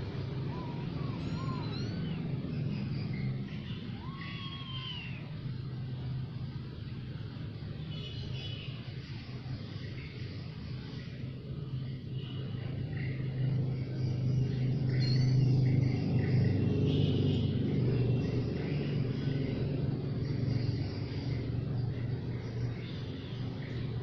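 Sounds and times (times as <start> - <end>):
passing vehicle engine drone: 0.0 - 7.6, 12.4 - 24.0.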